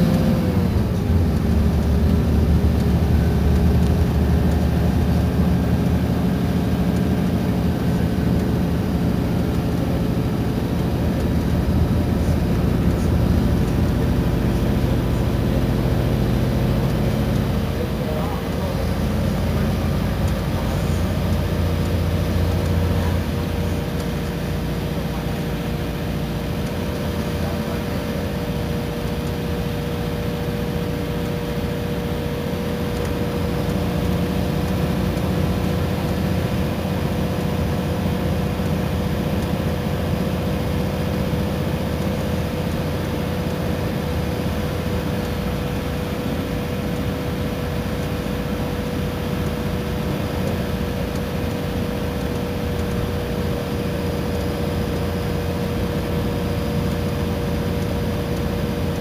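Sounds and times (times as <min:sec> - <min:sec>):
bus engine rumble and whine: 0:00.0 - 0:59.0
road hiss: 0:11.6 - 0:31.2.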